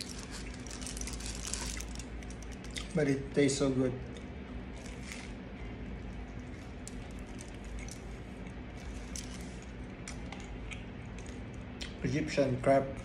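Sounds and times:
foil wrapper crinkling: 0.0 - 2.8
person chewing food: 0.0 - 2.9, 6.2 - 12.0
steady low hum: 0.0 - 13.0.

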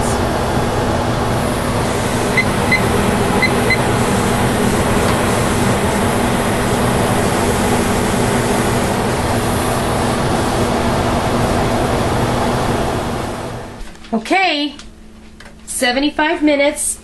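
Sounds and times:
pressure canner steam hissing: 1.3 - 12.2
kitchen timer beeps: 2.3 - 3.9.

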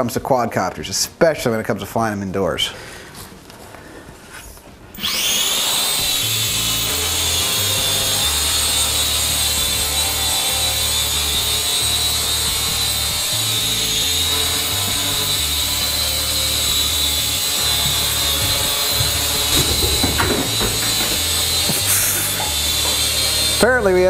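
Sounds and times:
toy quadcopter buzzing: 5.0 - 23.6.

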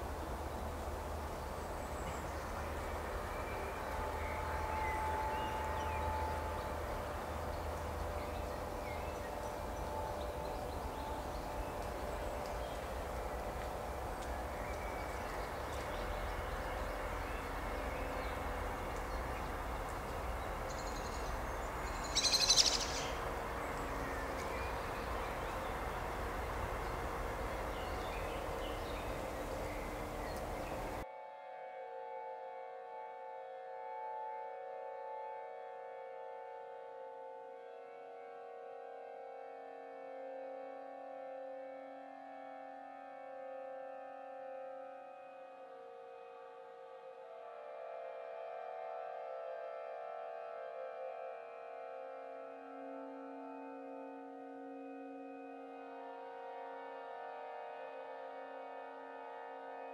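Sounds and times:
faint bird calls: 14.3 - 31.0.

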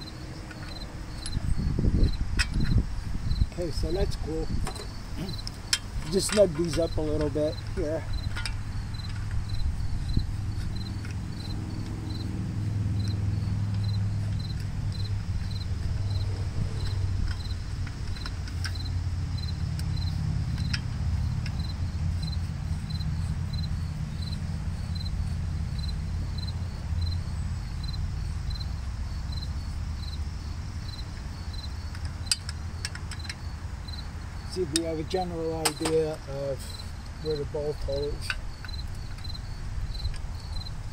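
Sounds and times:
insect chirping: 0.0 - 40.9
steady low rumble: 0.0 - 40.9
socket ratchet clicking: 13.0 - 25.1, 31.6 - 33.4.

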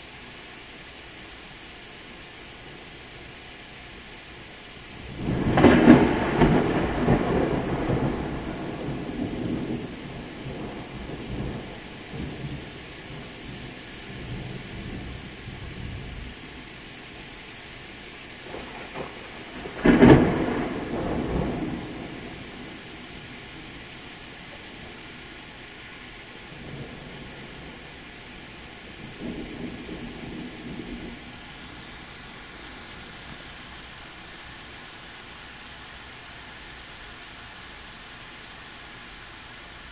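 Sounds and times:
steady rain: 0.0 - 39.9
thunder claps and rumbles: 5.0 - 16.2, 18.5 - 23.8, 26.5 - 28.2, 28.8 - 31.5.

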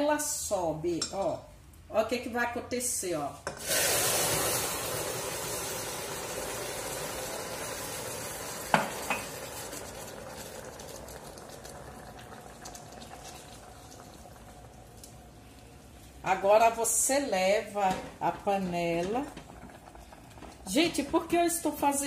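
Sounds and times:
caramel hissing and bubbling: 3.5 - 16.3, 19.3 - 21.1.

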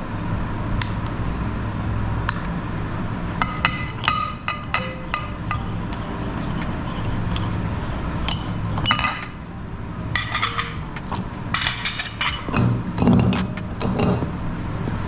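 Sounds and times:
metal parts clinking on glass: 8.3 - 9.3, 10.2 - 10.8, 11.5 - 13.2.

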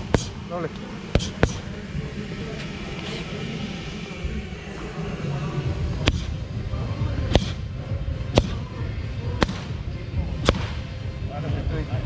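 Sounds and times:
low background rumble: 0.0 - 12.0
boxing gloves slapping mitts: 7.3 - 7.6, 8.3 - 8.6, 9.4 - 9.8, 10.4 - 10.8.

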